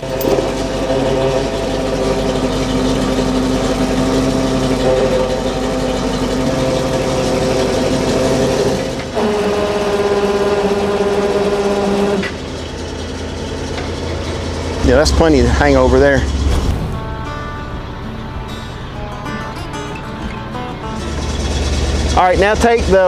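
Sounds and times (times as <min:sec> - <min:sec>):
boom engine and hydraulics running: 0:00.0 - 0:23.0.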